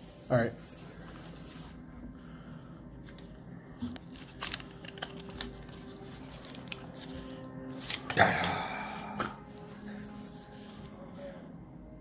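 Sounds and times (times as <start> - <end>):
light clicks and taps of packaging: 3.1 - 8.2.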